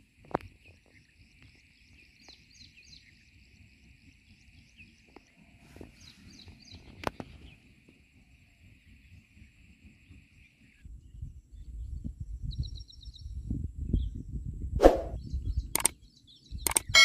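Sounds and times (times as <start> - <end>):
small birds chirping: 0.0 - 14.4, 15.0 - 17.0
insect drone: 0.0 - 14.6
sharp click: 14.8 - 16.0, 16.6 - 16.9.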